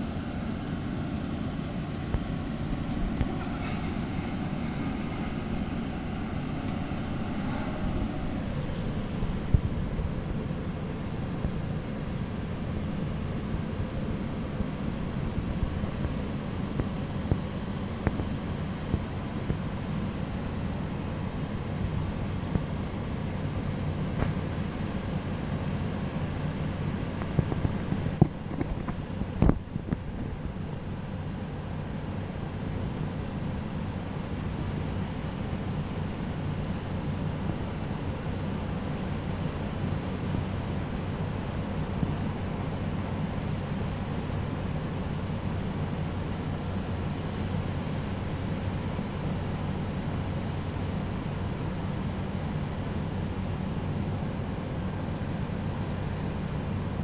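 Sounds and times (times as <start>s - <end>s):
excavator diesel engine droning: 0.0s - 57.0s.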